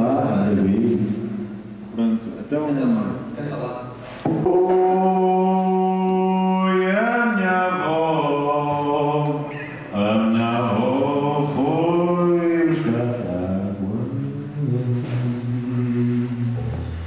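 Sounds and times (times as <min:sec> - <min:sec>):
man singing into a microphone: 0:04.3 - 0:17.0.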